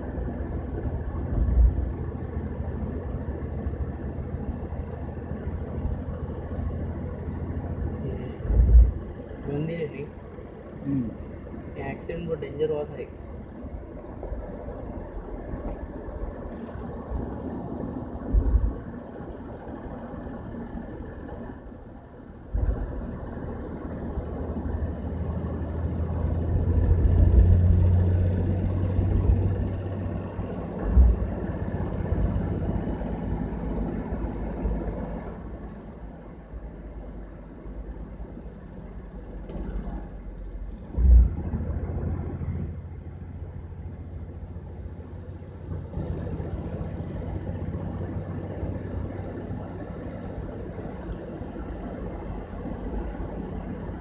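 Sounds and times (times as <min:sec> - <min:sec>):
vehicle road and engine noise: 0:00.0 - 0:54.0
low thumps: 0:08.4 - 0:09.2, 0:18.2 - 0:19.0, 0:30.8 - 0:31.5.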